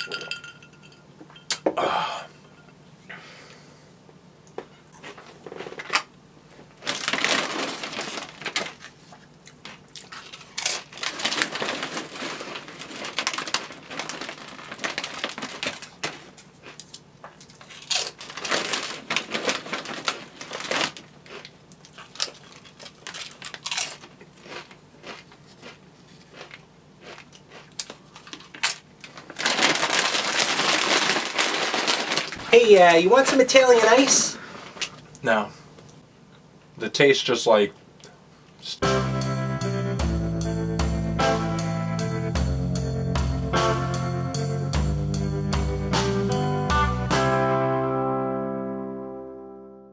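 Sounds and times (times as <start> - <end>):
food wrapper crinkling: 6.7 - 35.1
chewing: 21.2 - 28.6.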